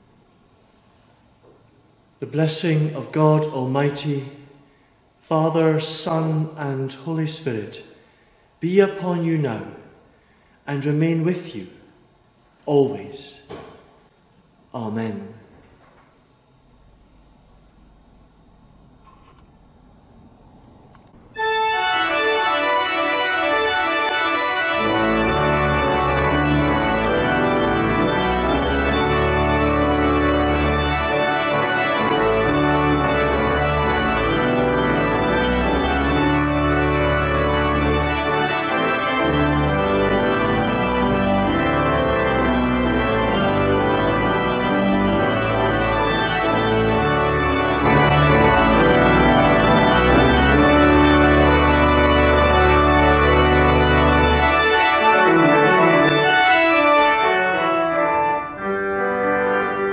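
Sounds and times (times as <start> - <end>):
pipe organ playing chords: 2.2 - 4.6, 5.4 - 12.0, 20.8 - 59.9
deep organ pedal bass: 21.3 - 59.9.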